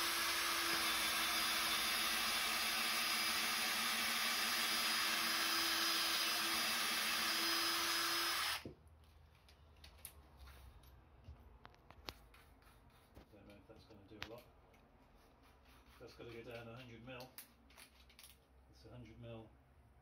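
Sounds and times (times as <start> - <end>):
cordless drill boring into wood: 0.0 - 8.7.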